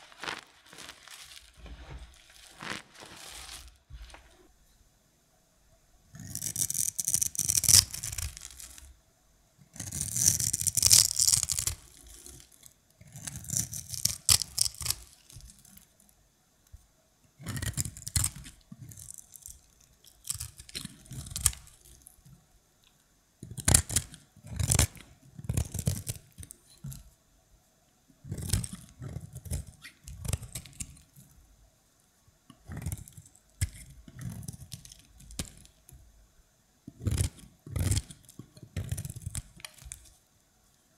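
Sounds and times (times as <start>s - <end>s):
soap crunching and crumbling: 0.0s - 4.3s, 6.2s - 8.9s, 9.8s - 15.9s, 17.4s - 22.1s, 23.4s - 27.1s, 28.2s - 31.2s, 32.5s - 35.8s, 36.9s - 40.2s.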